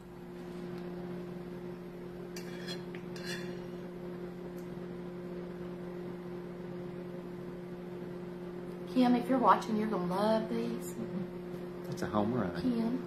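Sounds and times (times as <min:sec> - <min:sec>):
steady low hum: 0:00.0 - 0:13.0
fork clinking against plate: 0:02.4 - 0:03.7.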